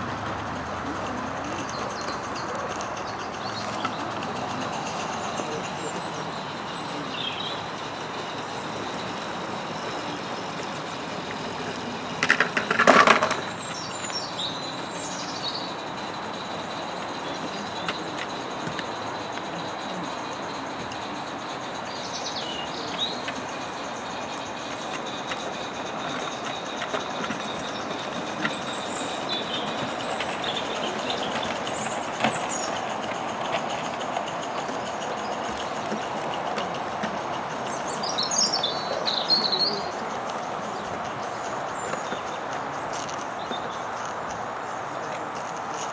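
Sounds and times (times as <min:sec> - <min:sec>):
model steam train running: 0:00.0 - 0:45.9
steady background hiss: 0:00.0 - 0:45.9
wheels clattering on track: 0:00.0 - 0:45.9
bird chirps: 0:00.1 - 0:44.0.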